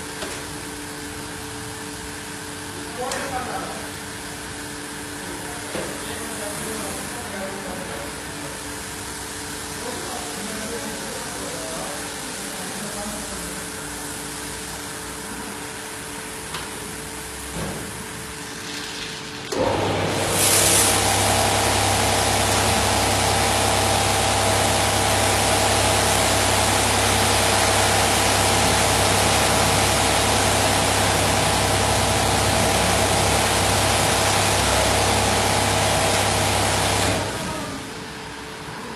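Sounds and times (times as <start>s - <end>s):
machine hum: 19.4s - 38.2s
high-pressure water spray hiss: 20.1s - 37.2s.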